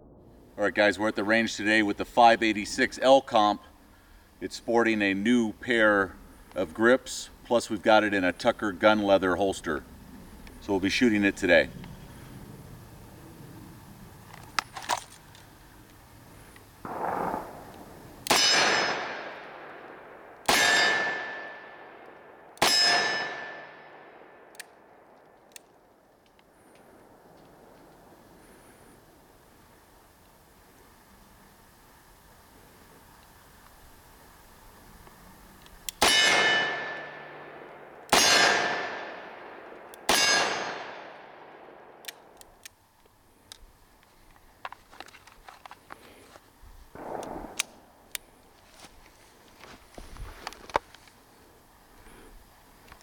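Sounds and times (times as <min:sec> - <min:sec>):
revolver gunshots: 0:16.8 - 0:25.0, 0:36.0 - 0:42.4, 0:46.9 - 0:48.1.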